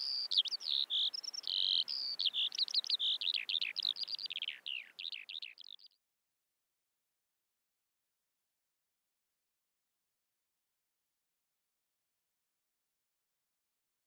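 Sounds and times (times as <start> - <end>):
small birds chirping: 0.0 - 6.0.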